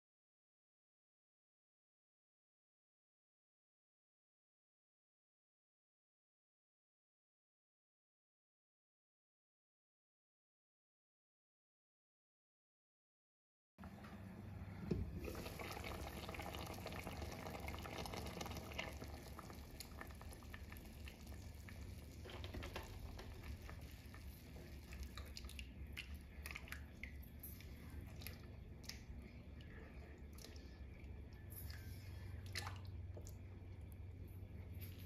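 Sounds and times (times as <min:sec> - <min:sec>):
gravy bubbling in a pot: 0:13.8 - 0:34.6
spatula stirring gravy squelches: 0:15.3 - 0:33.5.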